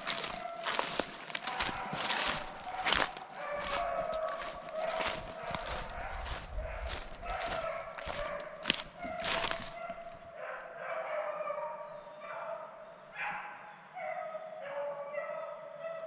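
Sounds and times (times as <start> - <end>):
sharp rustling and crackling: 0.0 - 10.2
hounds baying: 0.0 - 16.0.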